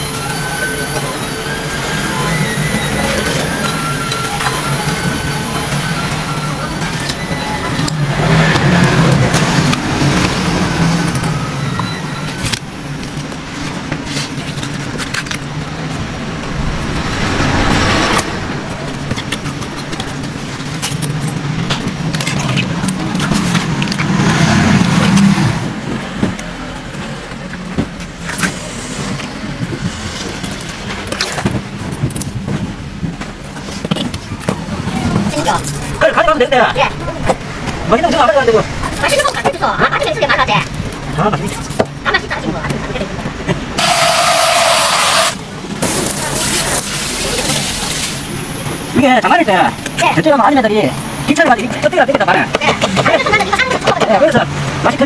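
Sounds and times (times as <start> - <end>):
vehicles passing: 0.0 - 55.0
scattered clicks and knocks: 17.6 - 36.0, 51.5 - 54.9.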